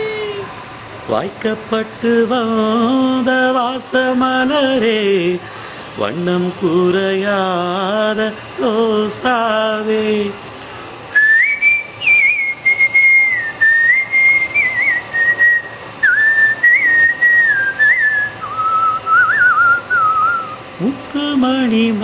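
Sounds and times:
man whistling a melody: 11.1 - 20.6.

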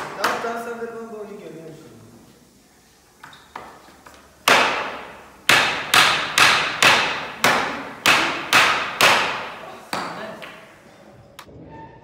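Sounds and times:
hammer striking wooden ladder: 4.4 - 10.6.

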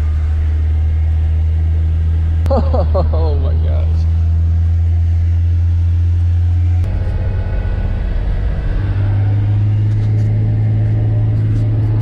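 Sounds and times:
truck engine drone: 0.0 - 12.0.

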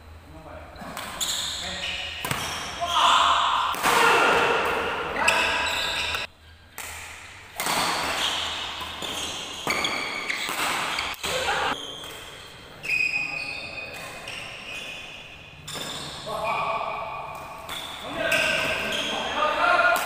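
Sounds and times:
racket striking shuttlecock: 3.5 - 5.1, 6.0 - 12.3
players' voices: 11.2 - 11.8, 18.0 - 20.0.

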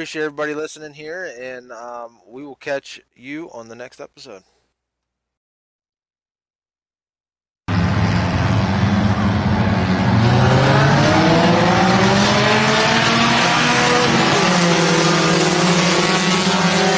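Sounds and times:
race car engines: 7.7 - 16.9.

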